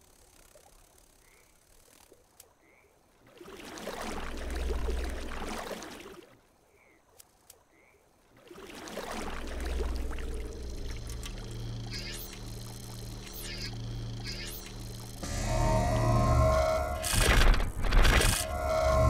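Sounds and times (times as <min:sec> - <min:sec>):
faint night chirps and clicks: 0:00.0 - 0:03.0, 0:06.7 - 0:08.0, 0:10.1 - 0:15.2
reversed rumbling surges: 0:15.2 - 0:19.0.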